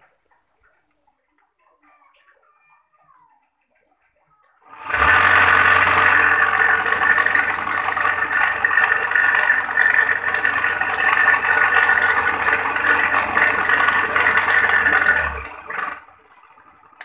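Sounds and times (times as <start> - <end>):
grater machine rattling whir: 4.6 - 17.0
low machine hum: 4.7 - 17.0.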